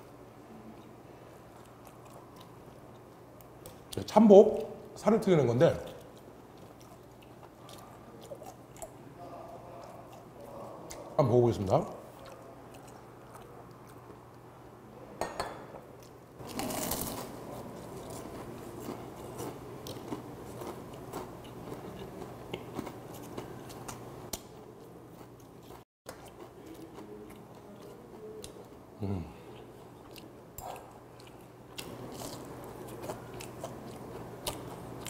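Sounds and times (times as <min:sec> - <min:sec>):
chewing with small crunches: 0:00.0 - 0:04.8, 0:05.7 - 0:11.2, 0:12.0 - 0:14.5, 0:16.0 - 0:35.0.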